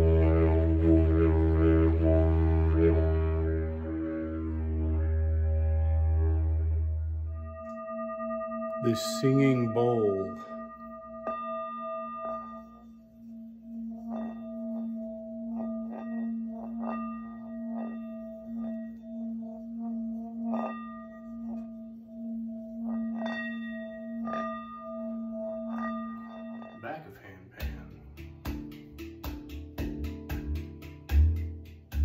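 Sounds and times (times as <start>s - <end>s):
singing bowl ringing: 4.2s - 27.2s.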